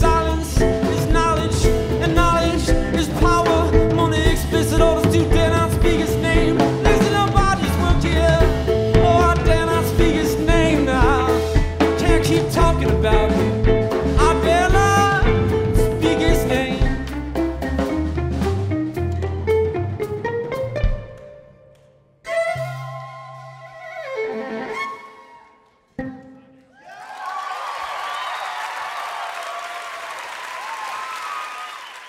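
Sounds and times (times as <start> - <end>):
drum kit: 0.0 - 21.4
sliding melody line: 0.0 - 21.5
bass guitar: 0.0 - 23.8.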